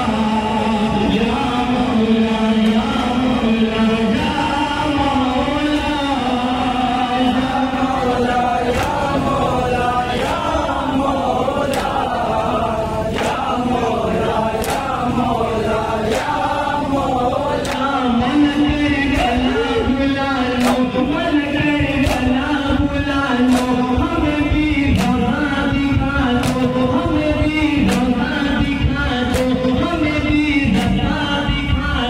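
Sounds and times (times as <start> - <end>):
men chanting through microphone: 0.0 - 32.0.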